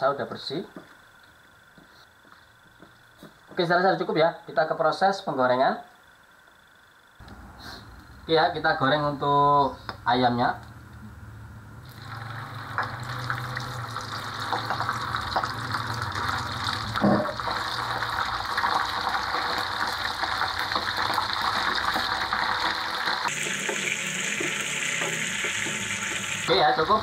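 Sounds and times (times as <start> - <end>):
chicken sizzling in hot oil: 11.9 - 27.0.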